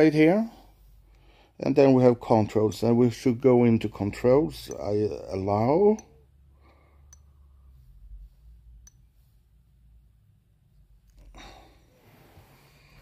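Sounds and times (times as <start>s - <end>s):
person breathing out: 11.2s - 13.0s.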